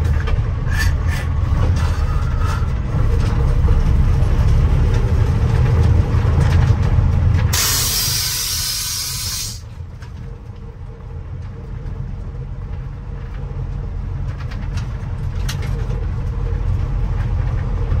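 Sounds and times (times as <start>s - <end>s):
diesel truck engine running: 0.0s - 18.0s
loud air hiss: 7.6s - 9.6s.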